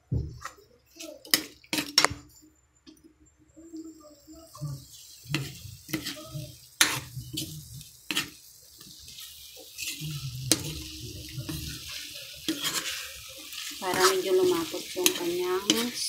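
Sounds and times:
sauce sizzling: 3.7 - 16.0
utensil scraping a frying pan: 4.9 - 16.0.

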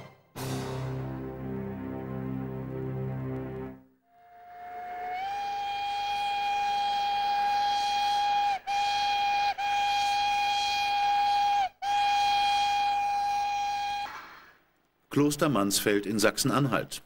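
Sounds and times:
steam locomotive whistle: 4.1 - 14.1.

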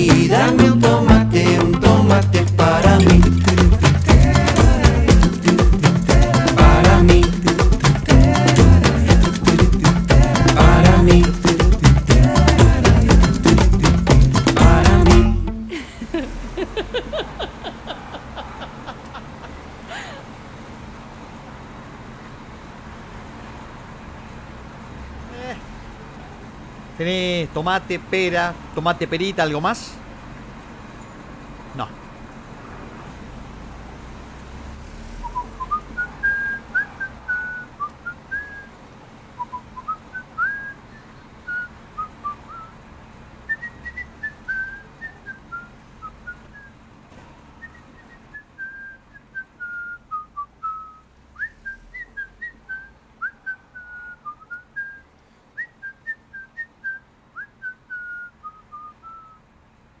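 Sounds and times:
person whistling a tune: 0.0 - 15.6, 35.2 - 38.7, 39.4 - 42.7, 43.5 - 46.7, 47.6 - 59.4
faint street background: 0.0 - 60.0.

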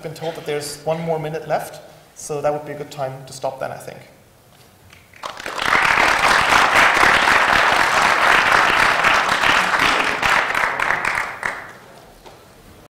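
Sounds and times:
audience applauding: 5.1 - 11.9.

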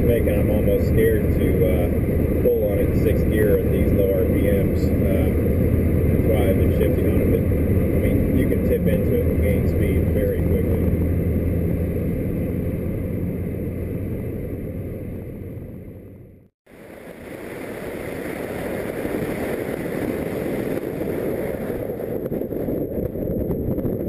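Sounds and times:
car engine droning: 0.0 - 16.5
wind and road noise: 0.0 - 24.0.

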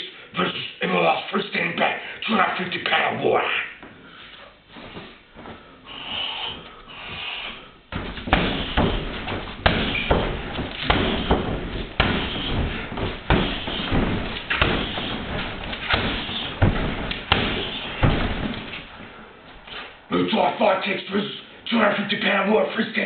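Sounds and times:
kicks thudding into heavy bag: 7.9 - 19.9.

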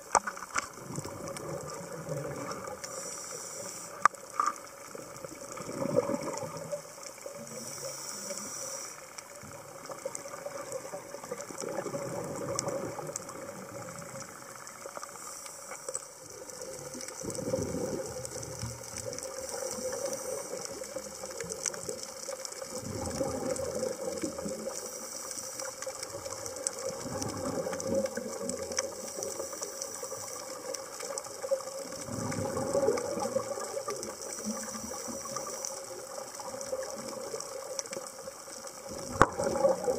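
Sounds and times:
exhaled bubbles rushing underwater: 0.7 - 3.1, 4.6 - 8.5, 9.2 - 15.2, 16.2 - 39.9
scuba regulator inhale hiss: 2.6 - 4.3, 7.4 - 9.3, 15.0 - 16.2, 19.4 - 21.3, 24.7 - 25.8, 28.9 - 30.6, 34.2 - 36.0.

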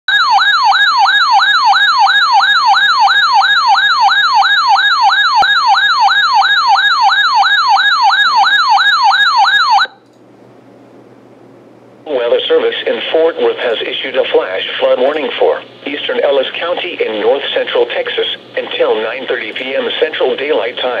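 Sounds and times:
electronic siren whooping: 0.1 - 10.0.

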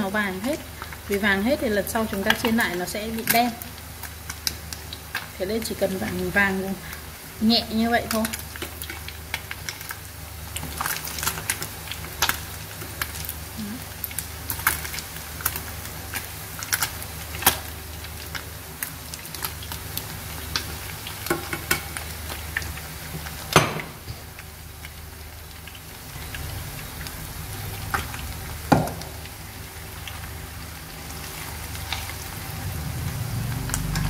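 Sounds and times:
fish sizzling in hot oil: 0.0 - 34.0.

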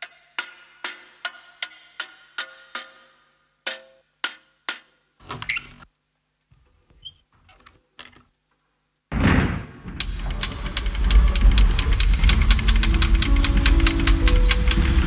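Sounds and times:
hollow ringing clicks: 10.0 - 15.0.

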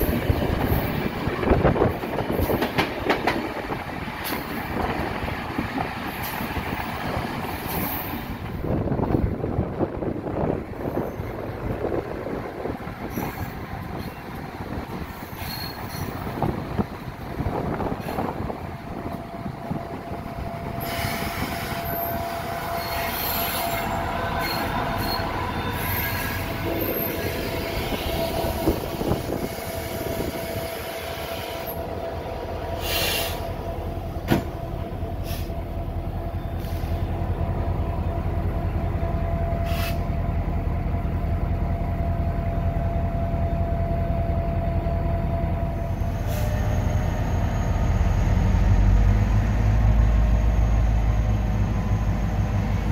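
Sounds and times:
train wheel squeal: 7.5 - 8.4, 10.8 - 11.8, 13.0 - 14.4, 15.0 - 16.5, 20.4 - 31.9, 32.8 - 33.8, 39.0 - 40.2, 41.8 - 52.9.

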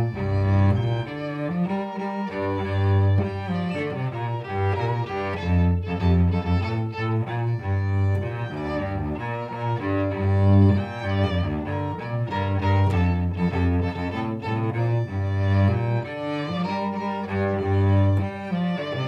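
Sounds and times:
cello and violin duet: 0.0 - 19.0.

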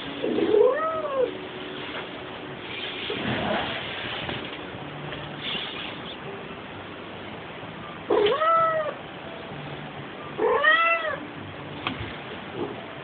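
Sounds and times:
cat meowing: 0.3 - 1.3, 8.1 - 9.0, 10.4 - 11.2.

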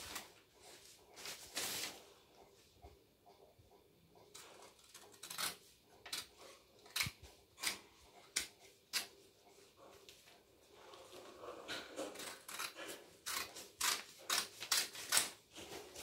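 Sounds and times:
scissors snipping paper: 4.3 - 9.1, 11.9 - 16.0.

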